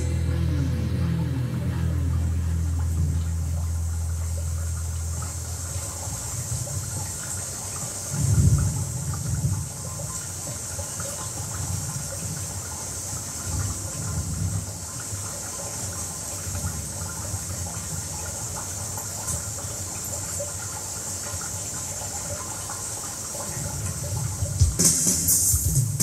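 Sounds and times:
low rumble: 0:00.0 - 0:07.1
steady rushing hiss: 0:18.8 - 0:26.0
loud drum hit: 0:24.6 - 0:26.0.

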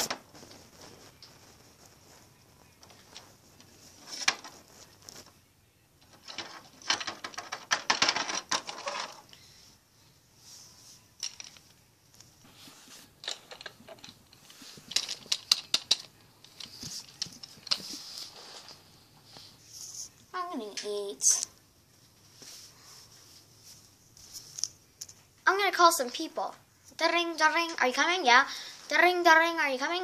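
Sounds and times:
plastic toys clicking: 0:13.2 - 0:17.8.

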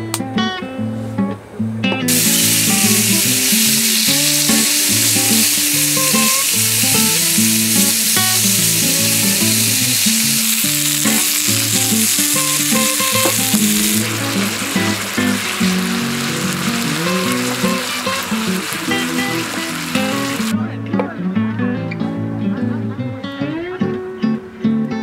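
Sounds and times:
guitar music: 0:00.0 - 0:25.0
meat sizzling in a pan: 0:02.1 - 0:20.5.

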